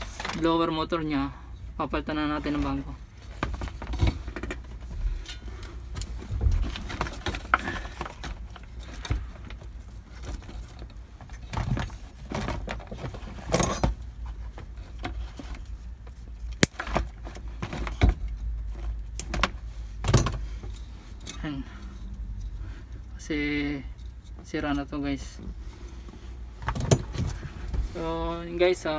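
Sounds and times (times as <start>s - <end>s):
low steady hum: 0.0s - 28.9s
tools and metal parts clinking: 5.2s - 14.0s, 16.3s - 24.7s.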